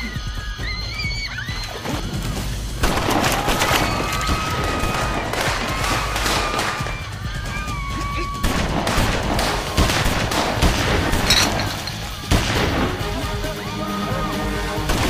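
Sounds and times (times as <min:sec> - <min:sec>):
gunshots: 0:02.8 - 0:13.6, 0:14.7 - 0:15.0.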